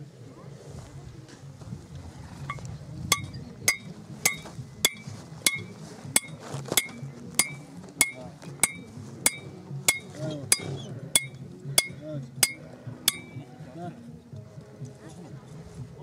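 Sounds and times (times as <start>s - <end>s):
hammer striking metal stake: 2.5s - 13.4s.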